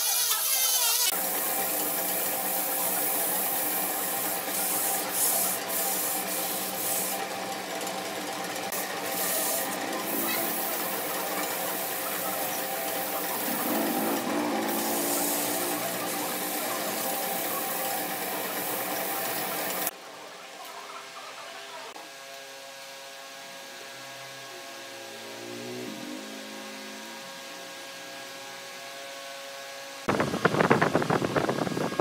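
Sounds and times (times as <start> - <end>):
sandpaper rubbing on spinning wood: 0.0 - 19.9.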